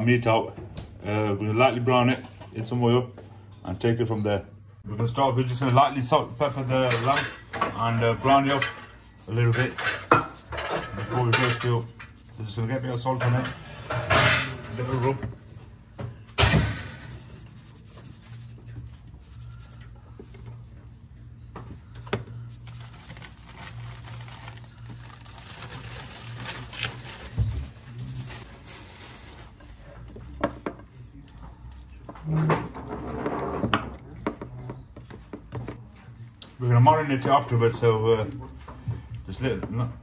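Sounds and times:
hands rubbing raw meat: 0:08.2 - 0:13.6, 0:16.9 - 0:20.7, 0:22.4 - 0:32.1.

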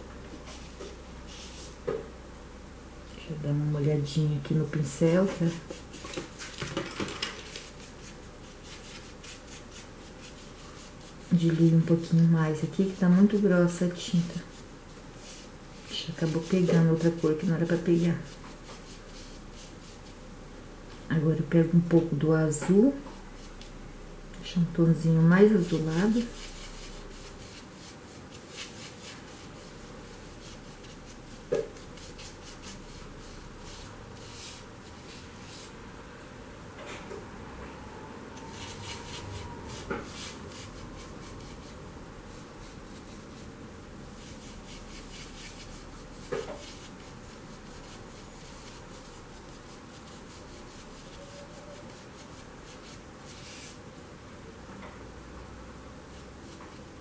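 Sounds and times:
paintbrush rasping on a palette: 0:07.4 - 0:20.2, 0:25.5 - 0:35.8, 0:38.4 - 0:43.5, 0:44.2 - 0:53.8.

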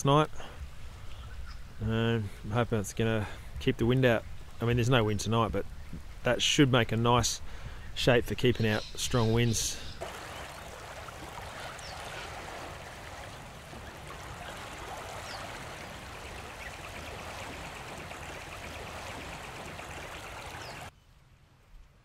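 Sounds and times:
rushing outdoor ambience: 0:09.1 - 0:20.9.

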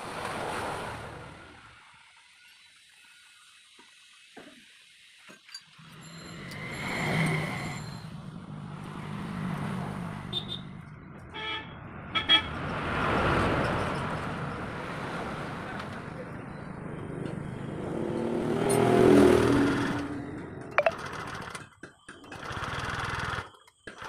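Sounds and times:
vehicles passing by: 0:08.0 - 0:21.2.

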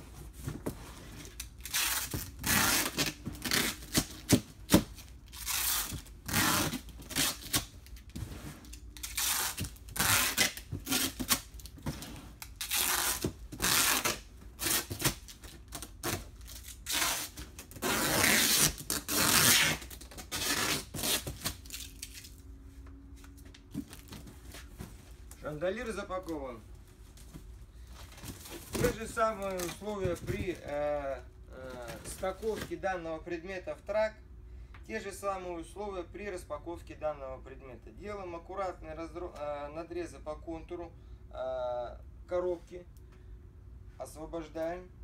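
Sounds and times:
cardboard rustling and scraping: 0:00.0 - 0:21.7, 0:22.7 - 0:30.9, 0:31.6 - 0:32.8
packing tape pulled: 0:01.3 - 0:11.8, 0:12.4 - 0:22.4.

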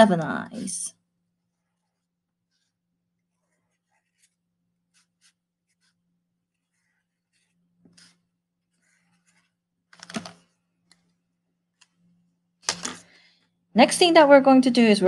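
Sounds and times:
marker scratching on paper plate: 0:01.5 - 0:09.6.

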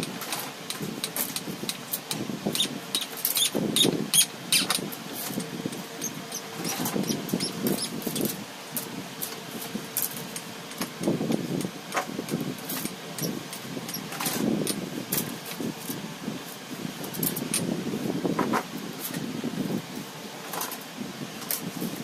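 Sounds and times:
rustling and scraping: 0:04.6 - 0:08.4.

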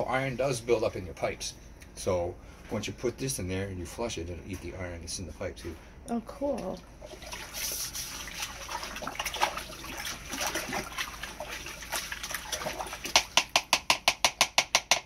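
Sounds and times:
water sloshing and splashing: 0:06.4 - 0:13.5
brush scrubbing: 0:07.1 - 0:13.4.

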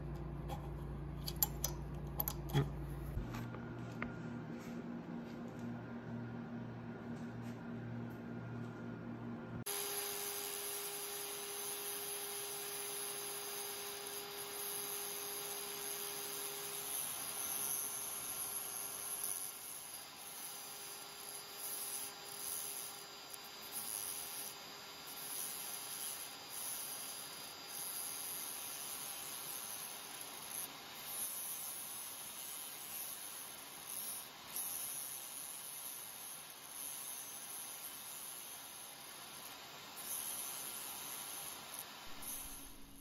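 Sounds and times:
rotary tool grinding metal: 0:09.7 - 0:43.0.

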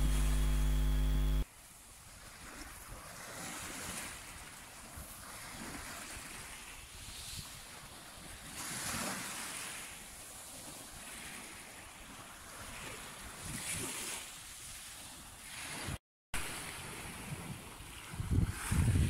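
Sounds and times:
small waves lapping on shore: 0:00.0 - 0:19.0
wind rumbling on microphone: 0:16.7 - 0:19.0.

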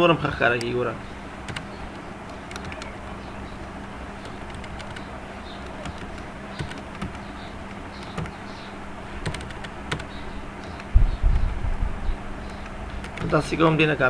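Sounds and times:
low hum: 0:00.0 - 0:14.0
keyboard key clicks: 0:01.5 - 0:03.0, 0:04.2 - 0:08.4, 0:09.2 - 0:11.6, 0:12.5 - 0:13.4
low thumping rumble: 0:09.3 - 0:13.6.

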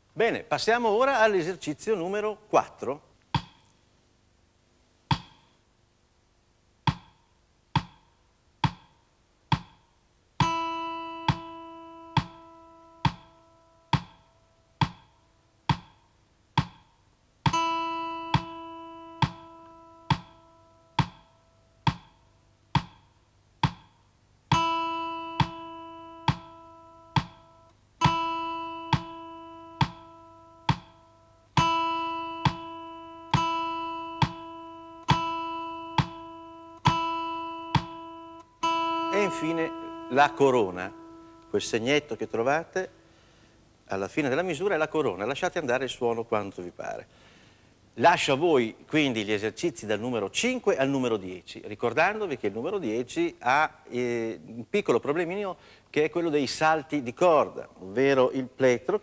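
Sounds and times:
metronome ticking: 0:03.2 - 0:03.8, 0:05.1 - 0:05.6, 0:06.8 - 0:43.0
acoustic guitar string picked: 0:10.4 - 0:14.2, 0:17.4 - 0:21.3, 0:24.5 - 0:42.6.

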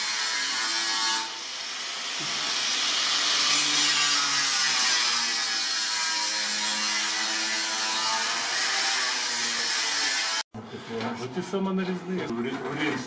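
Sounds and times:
angle grinder cutting sheet metal: 0:00.0 - 0:10.4.

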